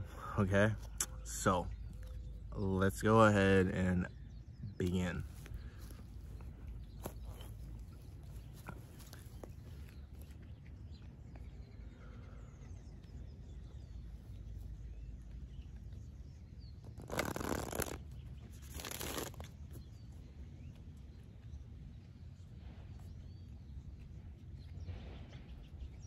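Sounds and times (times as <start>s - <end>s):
steady low rumble: 0.0s - 17.0s, 19.6s - 26.0s.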